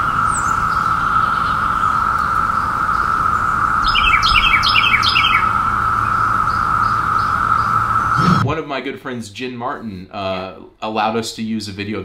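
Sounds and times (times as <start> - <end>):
cicadas buzzing: 0.0 - 8.4.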